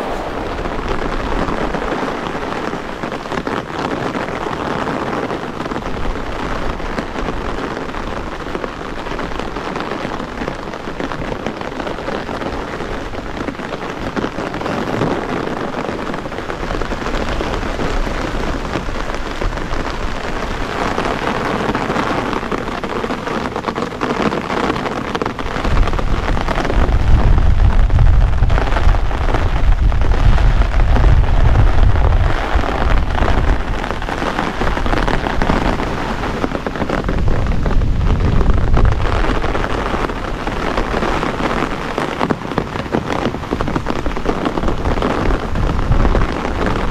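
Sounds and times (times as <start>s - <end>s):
deep low rumble: 0.0s - 2.4s, 25.7s - 33.9s, 37.1s - 39.7s
heavy rain pouring: 0.0s - 46.9s.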